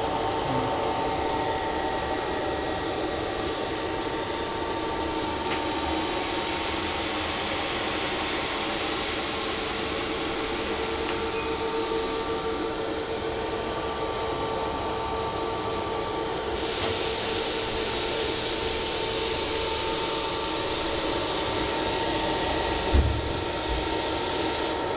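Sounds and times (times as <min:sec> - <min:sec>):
machinery humming: 0:00.0 - 0:24.9
loud high hiss: 0:16.6 - 0:24.9
thump: 0:22.9 - 0:23.4.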